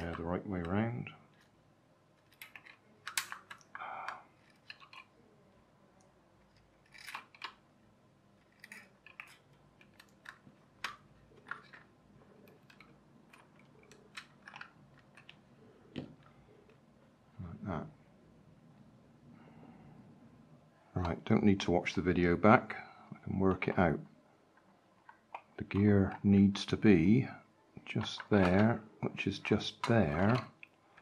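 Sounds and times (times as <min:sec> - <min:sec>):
plastic parts and pliers clicking: 0:02.2 - 0:05.1, 0:06.5 - 0:07.6, 0:08.4 - 0:16.1.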